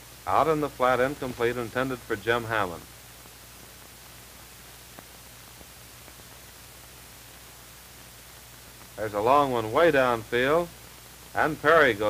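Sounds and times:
film soundtrack hiss: 0.0 - 12.0
faint ticks: 3.0 - 9.0.

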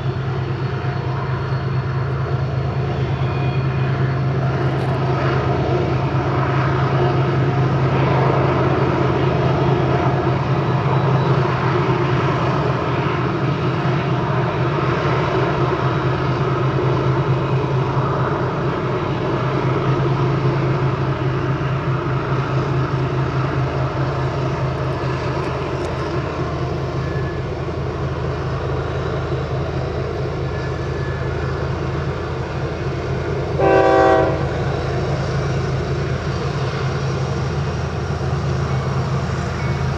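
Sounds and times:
diesel locomotive engine drone: 0.0 - 39.9
locomotive horn blast: 33.5 - 34.7.

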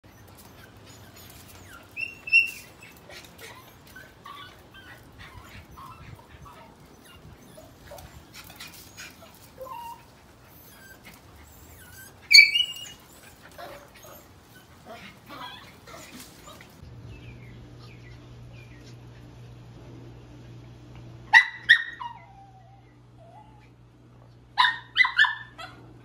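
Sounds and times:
dog whining: 0.0 - 16.8, 21.6 - 23.8
dog yelping: 0.1 - 16.8, 21.3 - 23.7, 24.6 - 25.8.

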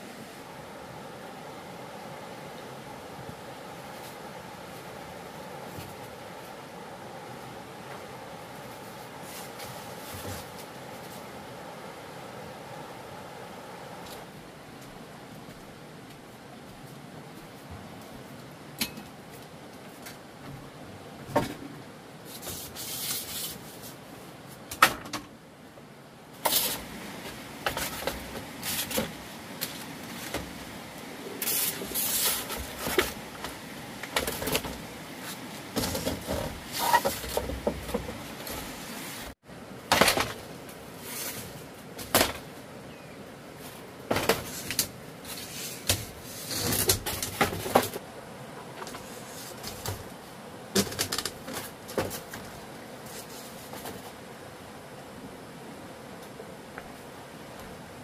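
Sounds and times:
wood scraping and rubbing: 31.4 - 39.0.

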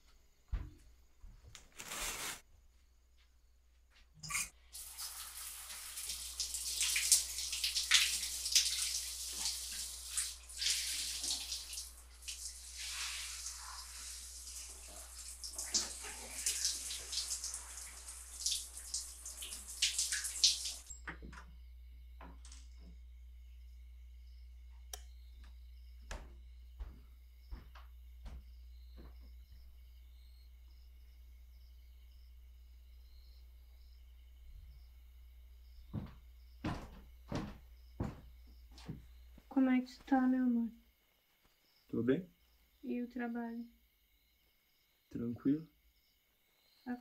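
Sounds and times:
shower water splashing on person: 4.3 - 21.0.

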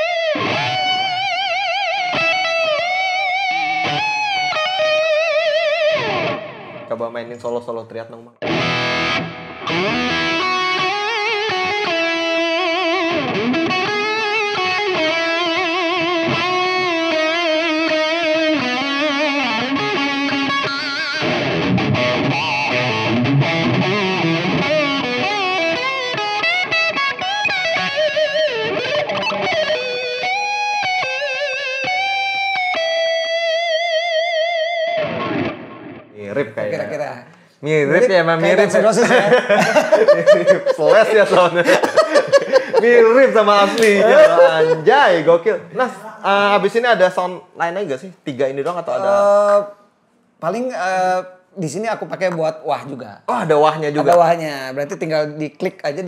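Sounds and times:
distorted electric guitar solo: 0.0 - 6.9, 8.4 - 36.2.

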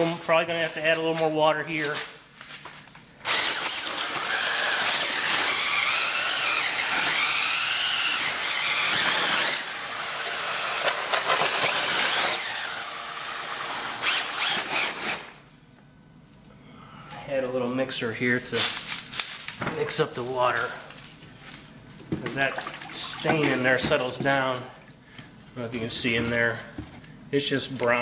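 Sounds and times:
drill mixing concrete: 3.2 - 15.4.

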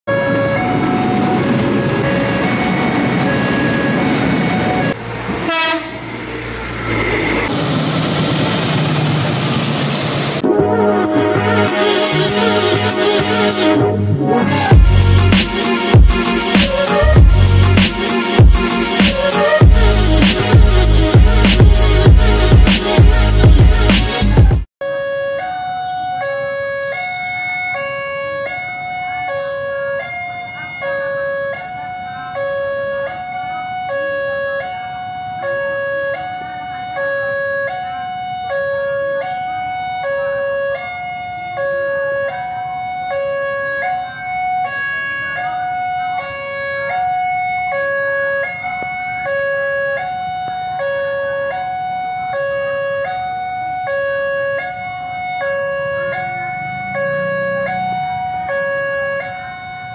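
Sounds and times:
level crossing alarm two tones: 0.1 - 5.0, 24.8 - 59.9.

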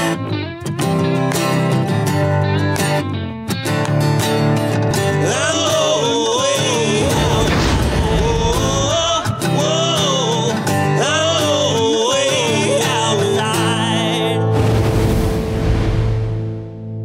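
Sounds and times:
guitar: 0.0 - 17.0
person singing: 5.0 - 14.6.

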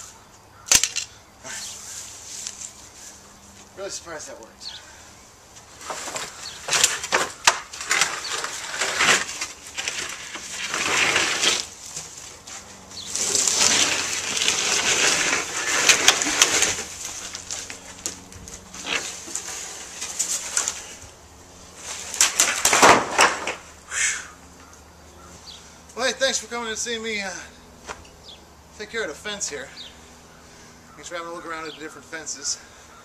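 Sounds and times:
wooden boards cracking and snapping: 0.7 - 1.1, 5.8 - 12.4, 13.1 - 21.0, 21.8 - 23.8
fence panel dragged scraping: 5.7 - 23.7.

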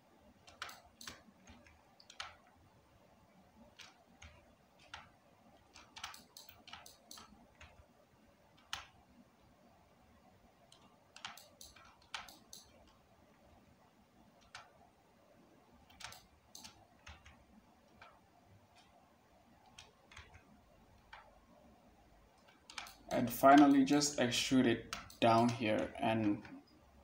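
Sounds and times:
mouse and keyboard clicks: 0.4 - 2.5, 3.7 - 7.9, 8.5 - 9.0, 10.7 - 13.0, 14.4 - 14.8, 15.9 - 19.0, 19.6 - 21.3, 22.4 - 24.2, 24.8 - 26.7.

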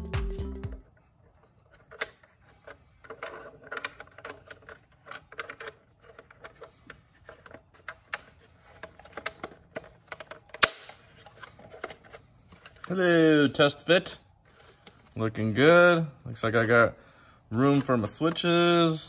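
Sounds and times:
plastic clicks and rattles: 1.0 - 13.0.

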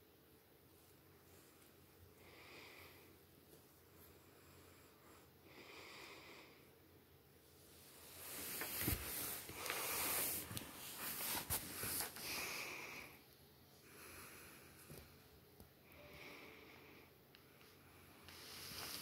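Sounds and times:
soft breathing: 0.8 - 19.0
rustling: 7.8 - 12.3, 18.3 - 19.0.

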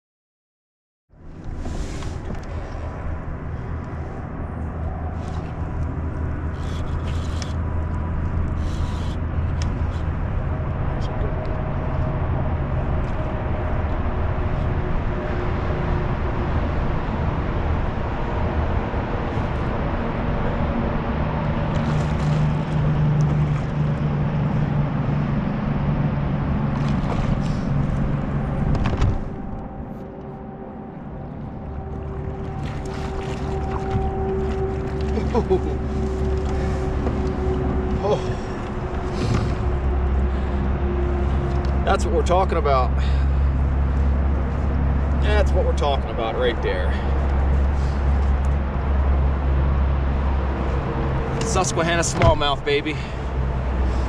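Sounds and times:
steady low hum: 1.2 - 54.0
short hissing rasps: 8.6 - 9.2.

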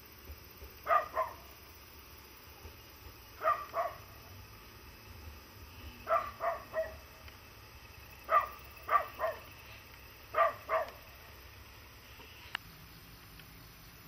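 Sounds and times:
dog barking: 0.8 - 1.5, 3.4 - 4.1, 6.0 - 7.0, 8.3 - 9.5, 10.3 - 11.0.

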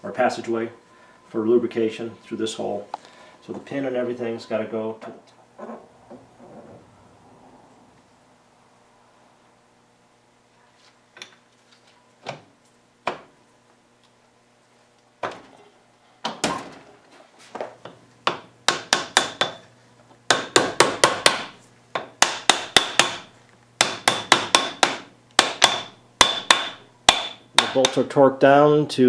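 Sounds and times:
hammer tapping metal: 18.3 - 19.6, 20.3 - 28.1.

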